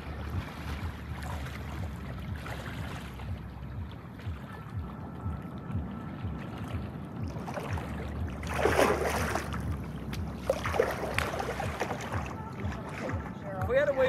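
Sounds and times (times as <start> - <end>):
boat engine rumble: 0.0 - 14.0
water splashing: 0.0 - 14.0
wind on microphone: 0.0 - 14.0
boat hull thumping: 7.2 - 14.0.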